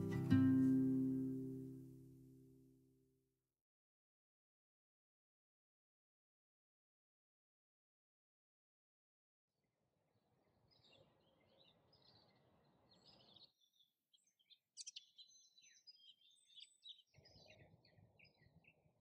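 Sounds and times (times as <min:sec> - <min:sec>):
soft low hiss: 0:00.0 - 0:02.4
small birds chirping: 0:10.7 - 0:19.0.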